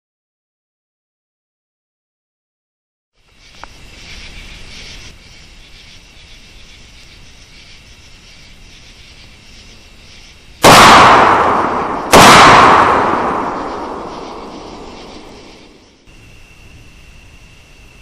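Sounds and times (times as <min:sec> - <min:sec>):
rifle shots with echo: 0:10.6 - 0:15.8.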